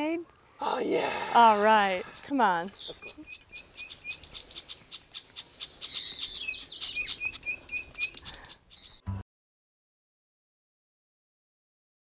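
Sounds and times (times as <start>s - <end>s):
small birds chirping: 0.6s - 9.1s.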